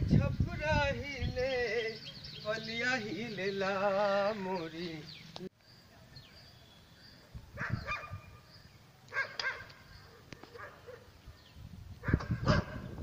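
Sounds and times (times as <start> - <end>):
dog barking: 7.6 - 8.3, 9.1 - 11.1, 12.0 - 12.9.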